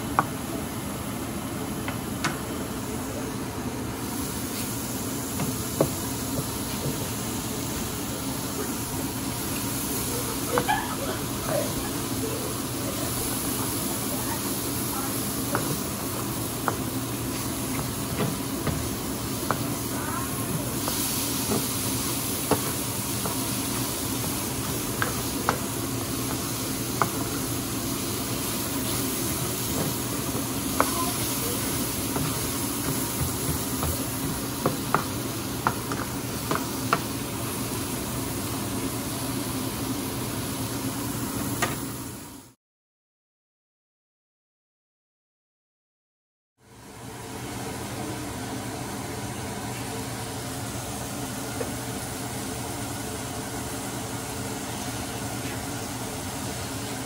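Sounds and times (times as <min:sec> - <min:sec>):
mushrooms sizzling in pan: 0:04.0 - 0:40.8.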